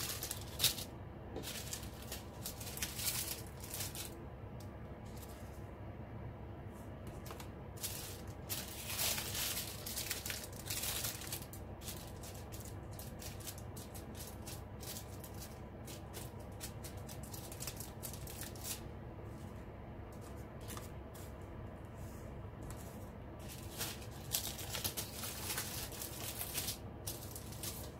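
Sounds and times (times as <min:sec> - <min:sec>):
plastic bags crinkling: 0:00.0 - 0:04.2, 0:07.2 - 0:18.9, 0:23.4 - 0:27.9
small beads rattling in bags: 0:00.0 - 0:04.2, 0:07.8 - 0:18.8, 0:23.4 - 0:27.9.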